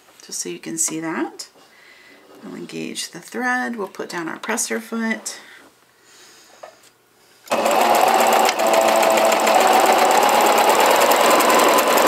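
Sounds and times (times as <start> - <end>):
sewing machine stitching: 7.5 - 12.0.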